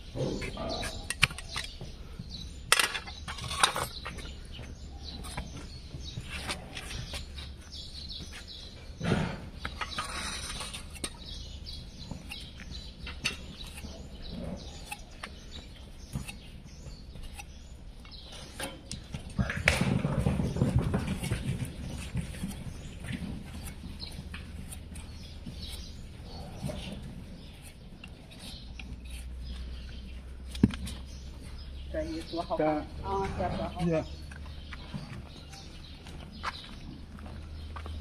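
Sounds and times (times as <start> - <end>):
knife scraping hoof: 9.7 - 17.7, 21.0 - 31.0.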